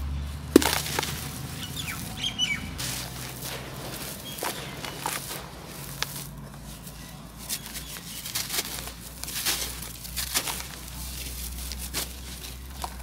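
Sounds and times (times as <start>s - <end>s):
dirt clods crunching: 0.0s - 13.0s
grains pattering down: 0.6s - 1.6s.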